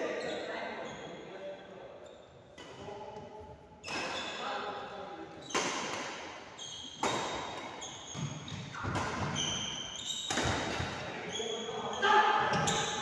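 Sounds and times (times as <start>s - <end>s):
rackets hitting shuttlecock: 5.4s - 11.2s.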